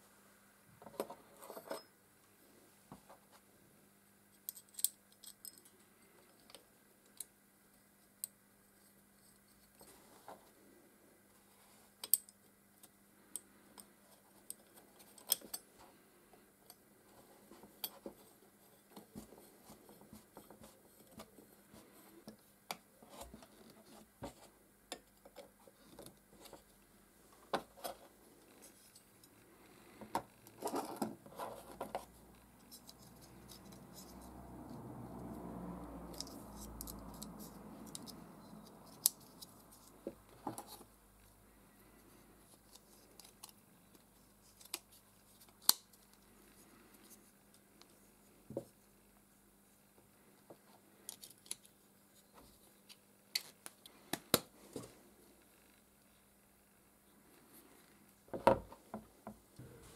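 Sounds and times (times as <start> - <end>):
small metal parts clicking and scraping: 4.4 - 6.6, 36.1 - 40.0
soft rush of noise: 32.0 - 42.7.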